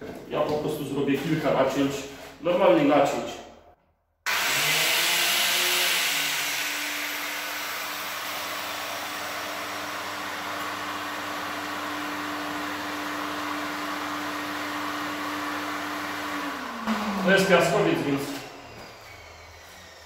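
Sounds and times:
dust extractor running: 4.3 - 20.0.

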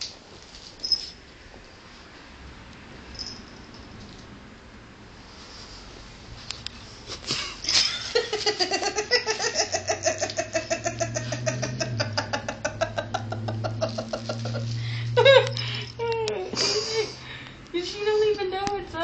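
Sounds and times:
steady low hum: 1.7 - 19.0
person laughing hard: 7.3 - 15.7.

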